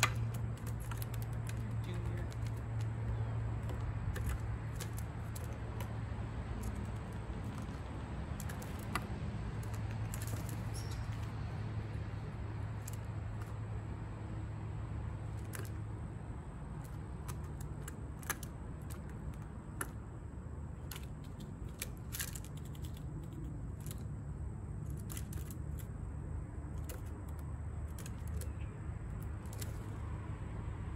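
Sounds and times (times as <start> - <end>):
light clicks and taps: 0.0 - 6.0
steady low hum: 0.0 - 30.9.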